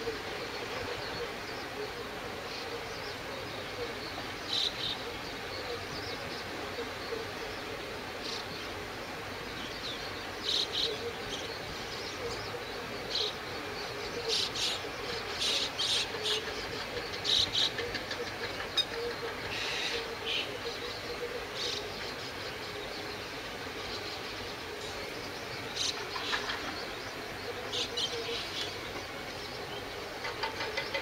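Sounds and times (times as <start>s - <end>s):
background hiss: 0.0s - 31.0s.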